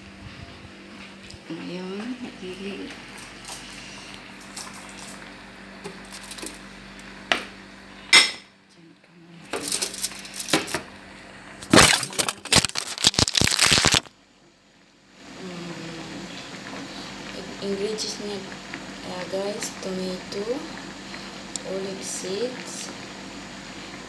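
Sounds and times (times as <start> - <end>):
utensils and pans clattering: 9.6 - 10.8.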